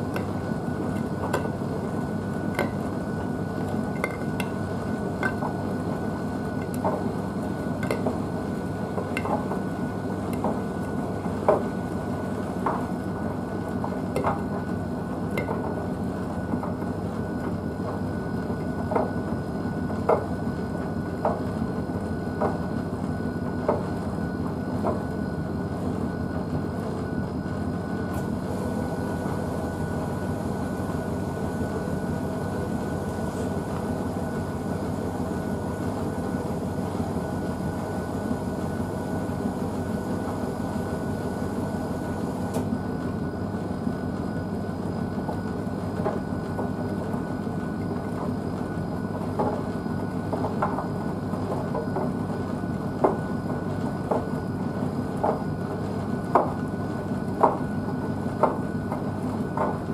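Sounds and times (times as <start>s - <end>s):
washing machine drum turning: 0.0s - 18.1s
motor hum with high whine: 0.0s - 59.9s.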